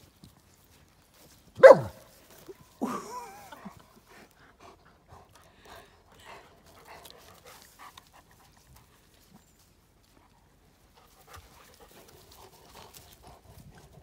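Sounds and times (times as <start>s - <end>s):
dog calling: 1.6s - 2.0s.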